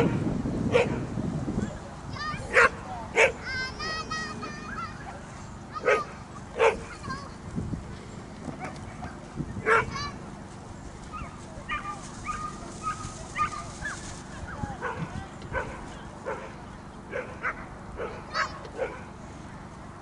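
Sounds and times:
dog barking: 0.0s - 1.0s, 2.5s - 3.4s, 5.8s - 6.9s, 9.6s - 9.9s, 11.1s - 14.0s, 14.8s - 16.5s, 17.1s - 19.1s.

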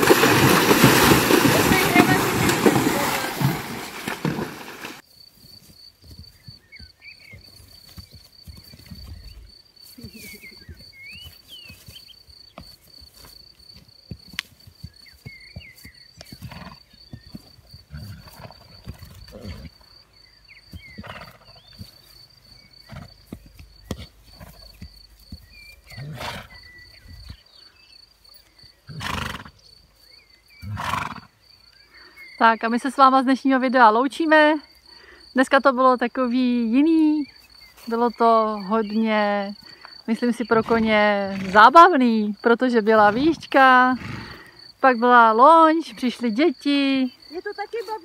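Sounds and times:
insect buzz: 0.0s - 32.4s, 33.6s - 48.0s
bird chirps: 6.3s - 12.6s, 14.8s - 16.4s, 25.4s - 28.8s.

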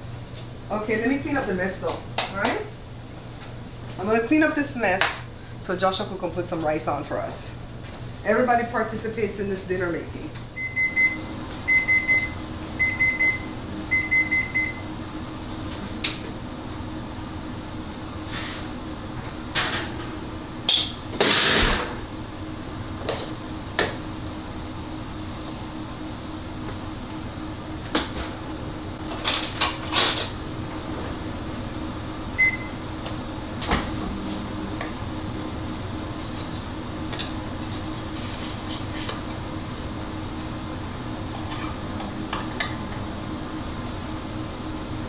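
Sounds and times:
steady low hum: 0.0s - 45.0s
oven timer beeping: 10.6s - 14.9s, 32.4s - 32.9s.

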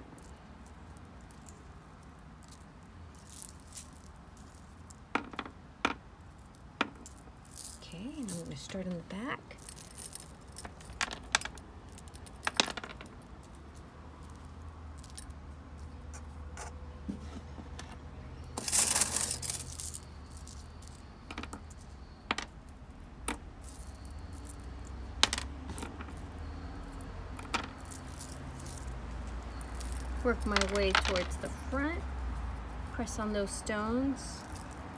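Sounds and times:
pebbles clicking together: 0.0s - 16.3s, 18.4s - 31.8s, 34.2s - 34.9s
stones rattling: 9.6s - 15.4s, 18.5s - 22.6s, 23.3s - 26.3s, 27.4s - 31.7s.

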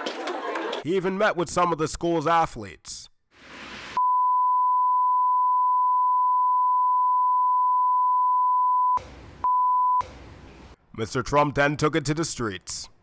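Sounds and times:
censor bleep tone: 4.0s - 10.0s.

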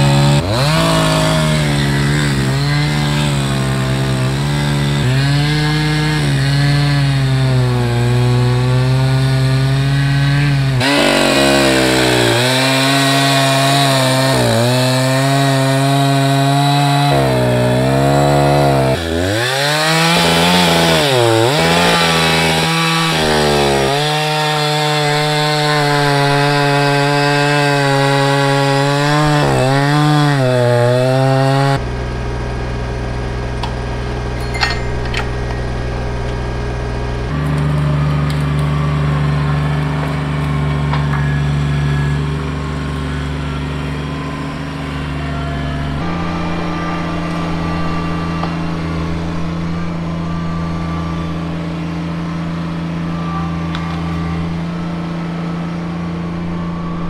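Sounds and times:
tractor diesel engine running: 0.0s - 30.0s, 31.7s - 57.0s
chainsaw cutting log: 0.0s - 32.0s, 32.8s - 57.0s.

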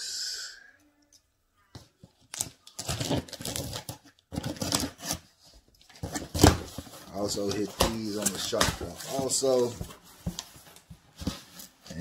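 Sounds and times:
cardboard scraping and rustling: 2.8s - 5.3s, 5.9s - 12.0s.

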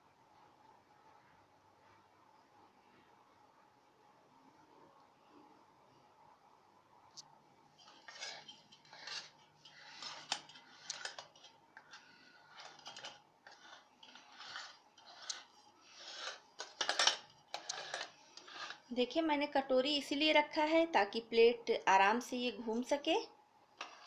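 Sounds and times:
metal spoon scraping icing: 7.8s - 19.0s, 23.8s - 24.0s
steel plate scraping: 7.8s - 19.0s, 23.8s - 24.0s.

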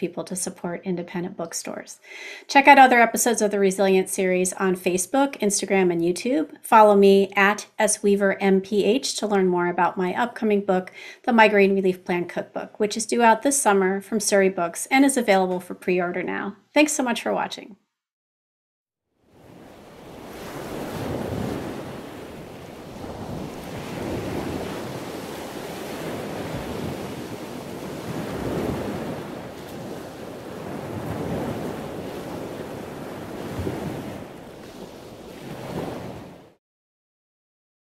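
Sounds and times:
ocean surf washing on beach: 19.3s - 36.6s.

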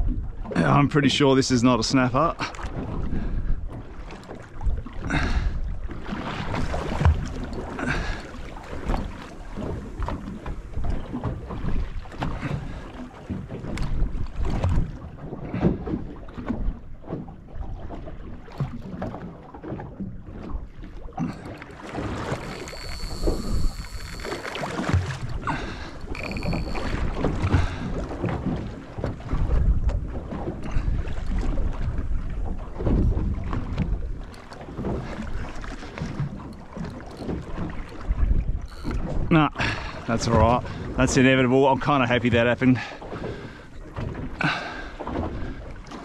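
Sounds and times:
water slapping boat hull: 0.0s - 46.0s
brief high whine: 21.4s - 24.9s, 26.1s - 27.2s, 38.7s - 39.0s.

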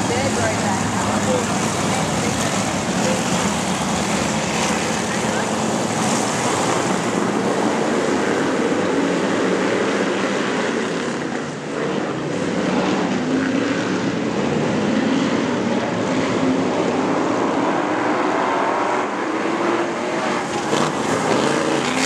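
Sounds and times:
racing car engines droning: 0.0s - 22.0s.

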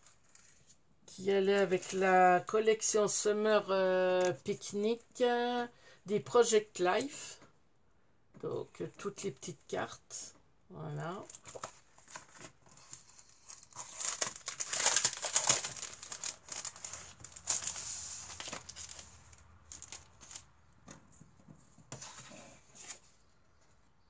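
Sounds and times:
packaging crinkling: 11.3s - 20.5s.

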